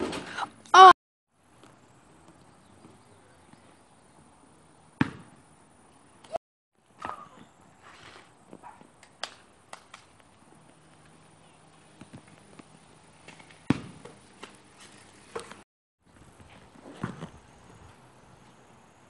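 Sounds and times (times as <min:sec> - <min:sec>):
short cry: 0:00.7 - 0:01.0.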